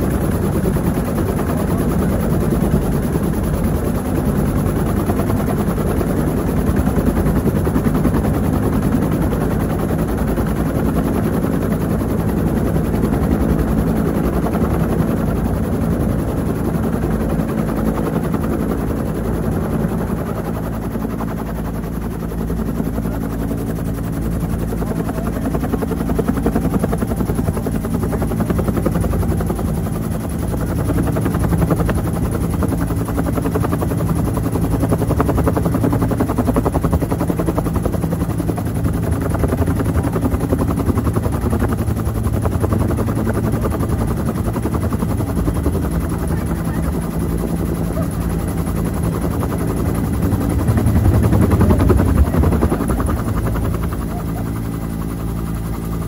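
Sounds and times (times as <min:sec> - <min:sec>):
helicopter rotor beating: 0:00.0 - 0:56.0
turbine running: 0:40.9 - 0:56.0.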